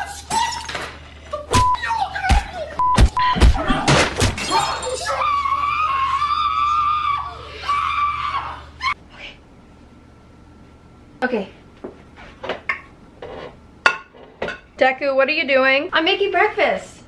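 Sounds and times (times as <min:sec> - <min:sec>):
long wavering scream: 0:04.5 - 0:09.0.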